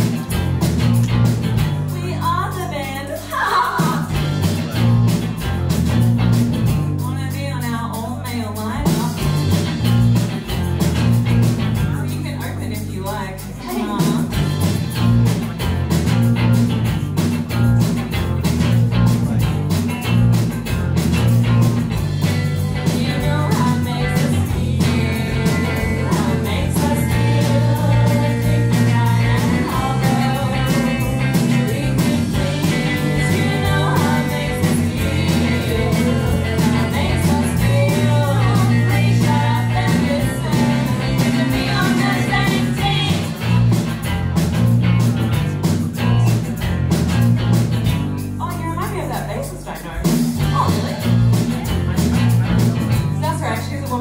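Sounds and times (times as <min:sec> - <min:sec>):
drums: 0:00.0 - 0:54.0
electric guitar: 0:00.0 - 0:54.0
woman singing: 0:01.9 - 0:04.2, 0:12.0 - 0:14.4, 0:22.6 - 0:43.4.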